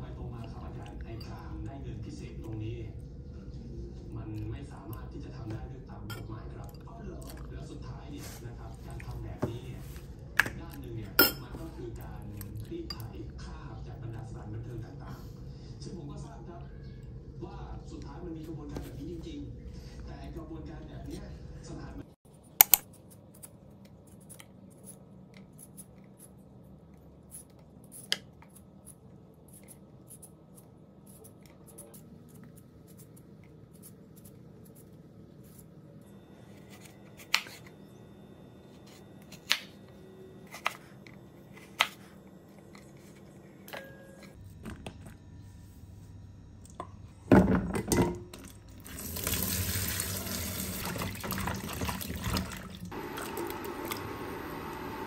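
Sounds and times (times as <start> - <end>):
tap water running into sink: 48.4 - 54.1.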